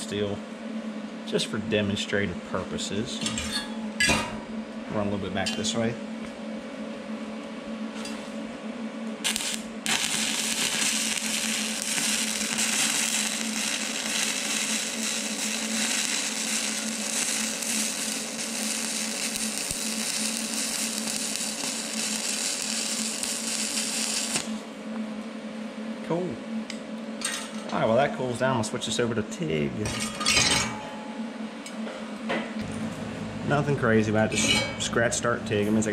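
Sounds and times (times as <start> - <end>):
low steady hum: 0.0 - 35.9
welding arc crackling hiss: 9.1 - 24.8
welding arc strike: 9.2 - 24.6.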